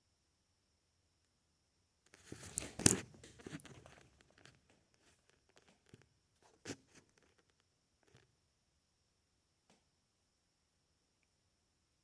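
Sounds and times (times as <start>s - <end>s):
rustling and crackling handling noise: 2.1s - 8.2s.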